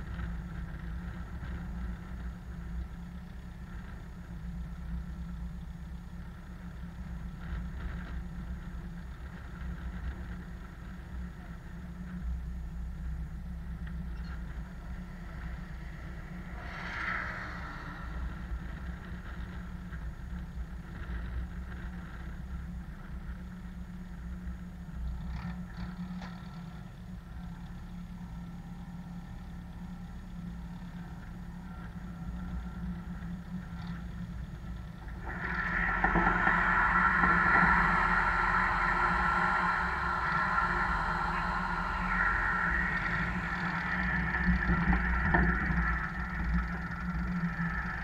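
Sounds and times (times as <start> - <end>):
tractor engine idling: 0.0 - 48.0
water rushing from sprayer nozzles: 35.1 - 48.0.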